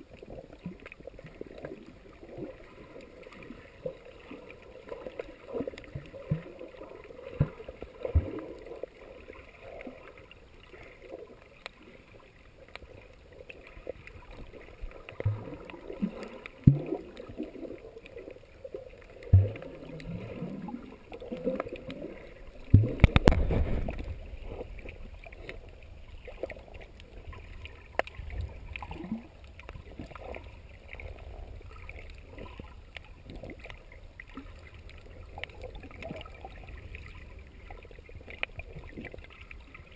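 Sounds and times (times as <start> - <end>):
underwater gurgling and sloshing: 0.0 - 39.9.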